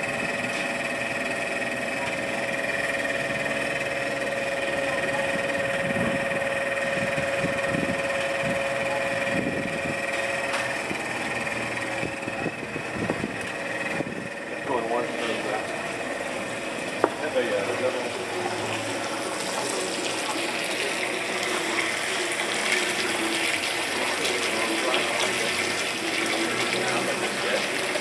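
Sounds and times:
pump motor humming: 0.0 - 28.0.

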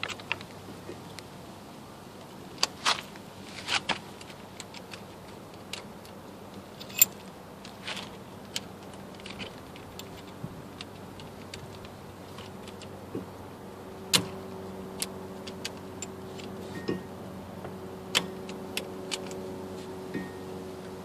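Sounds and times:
faint steady hum: 0.0 - 21.0
metal clicks and clinks: 6.8 - 7.2.

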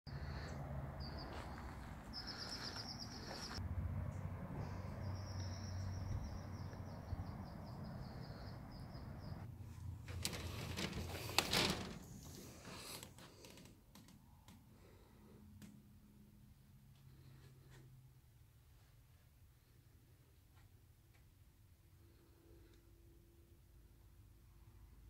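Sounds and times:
outdoor background noise: 0.1 - 25.0
bird chirping: 1.0 - 3.6, 4.9 - 9.5.

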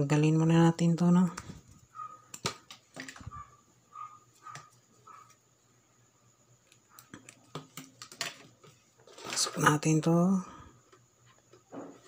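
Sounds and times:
faint clicks of small parts handling: 6.6 - 9.7.

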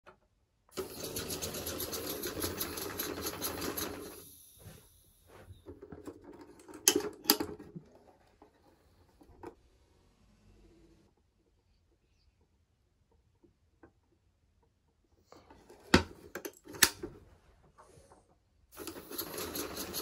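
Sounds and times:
pneumatic toy engine clattering: 0.7 - 4.4, 18.8 - 20.0.

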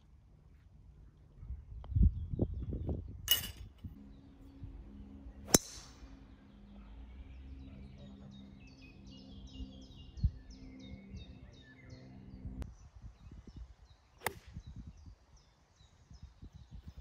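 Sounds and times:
golf club striking ball: 5.5 - 6.0.

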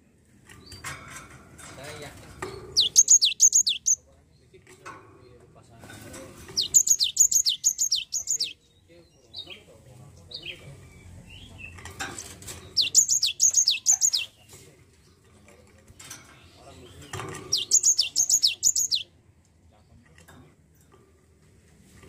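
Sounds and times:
soft bird calls: 2.4 - 19.2
bird singing rapid high notes: 2.8 - 4.0, 6.6 - 8.7, 12.7 - 14.4, 17.5 - 19.1.

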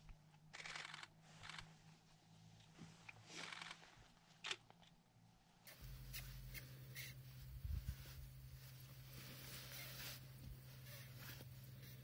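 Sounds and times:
faint low hum: 0.0 - 12.0
soft handling rustles: 5.7 - 12.0.

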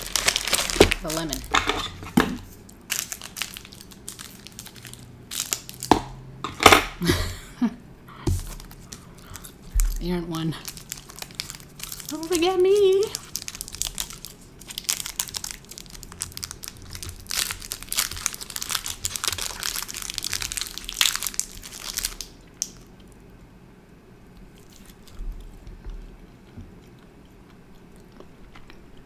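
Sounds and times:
candy wrapper crinkling: 0.0 - 1.7, 2.5 - 5.9, 8.4 - 22.9.

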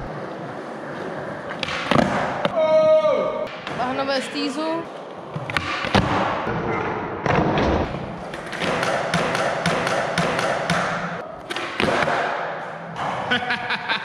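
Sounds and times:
skateboard wheels rolling on concrete: 0.0 - 2.4.

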